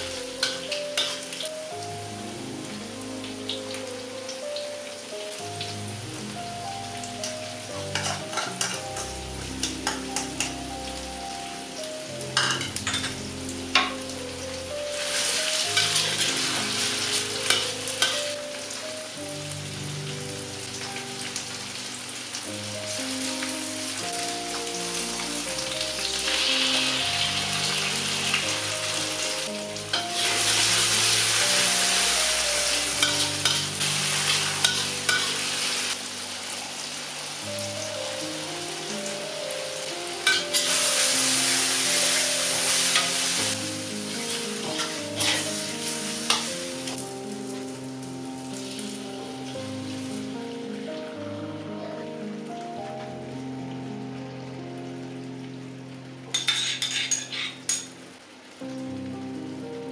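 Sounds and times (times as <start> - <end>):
soft background music: 0.0 - 59.9
vegetables sizzling in oil: 0.0 - 59.9
metal spatula scraping wok: 29.9 - 36.0, 44.2 - 47.0, 56.3 - 57.9.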